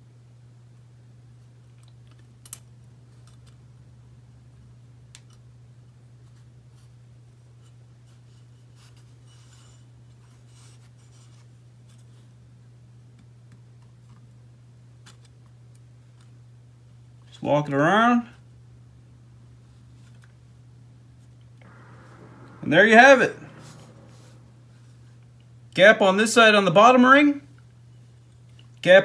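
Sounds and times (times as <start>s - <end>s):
steady low hum: 21.6s - 28.9s.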